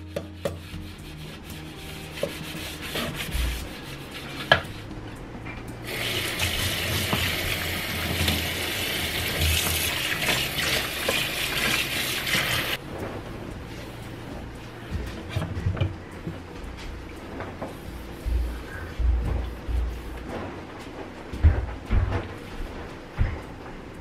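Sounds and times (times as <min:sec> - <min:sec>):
brush scrubbing metal sink: 0:00.0 - 0:04.9, 0:05.9 - 0:12.8
tap water running into sink: 0:05.9 - 0:12.8.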